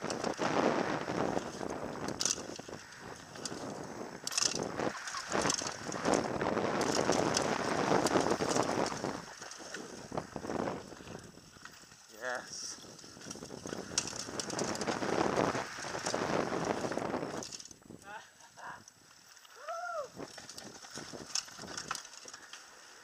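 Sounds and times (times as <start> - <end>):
wind on microphone: 0.0 - 11.7, 12.4 - 18.8
bike tyres skidding over dirt: 0.0 - 17.7, 19.1 - 23.0
bike rattling: 0.0 - 18.0, 20.1 - 23.0.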